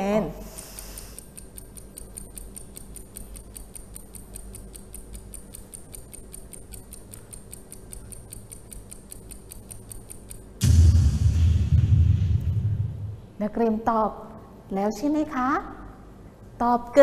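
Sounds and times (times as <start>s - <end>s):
fast clock ticking: 0.0s - 10.6s.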